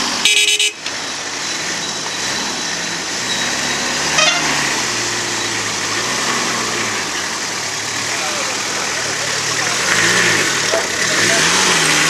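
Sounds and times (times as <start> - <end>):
pickup engine at low revs: 0.8 - 12.0.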